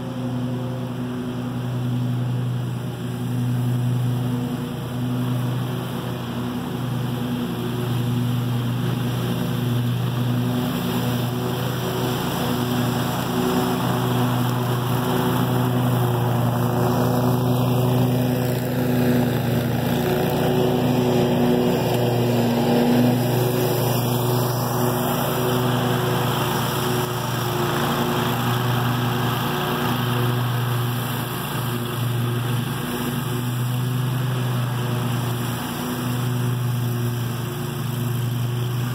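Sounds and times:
lawn mower engine drone: 0:00.0 - 0:38.9.

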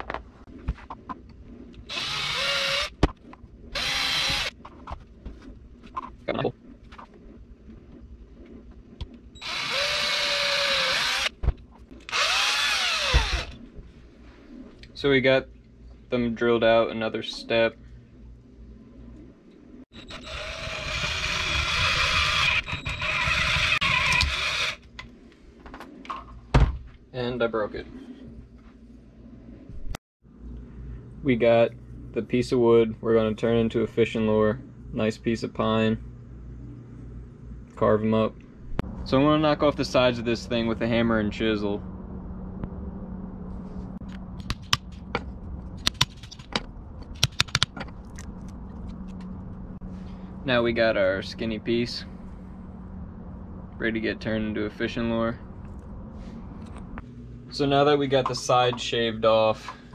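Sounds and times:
electric drill boring into wood: 0:01.9 - 0:03.0, 0:03.8 - 0:04.5, 0:09.4 - 0:11.3, 0:12.0 - 0:13.6, 0:20.0 - 0:24.8.

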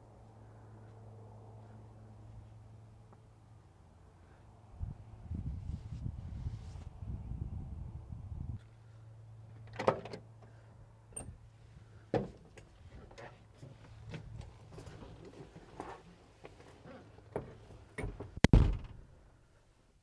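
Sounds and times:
thump: 0:18.4 - 0:19.0.

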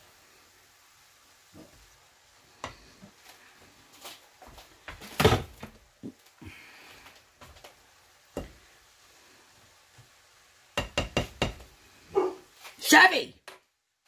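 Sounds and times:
spatula knocking and scraping pan: 0:02.6 - 0:03.2, 0:08.3 - 0:08.6, 0:10.8 - 0:11.8.

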